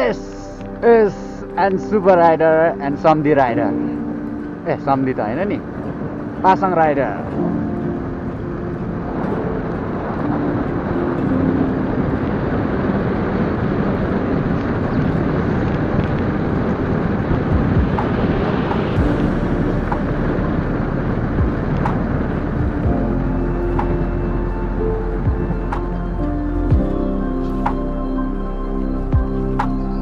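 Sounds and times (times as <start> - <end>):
wind and road rush: 0.0 - 30.0
motorcycle engine drone: 2.3 - 30.0.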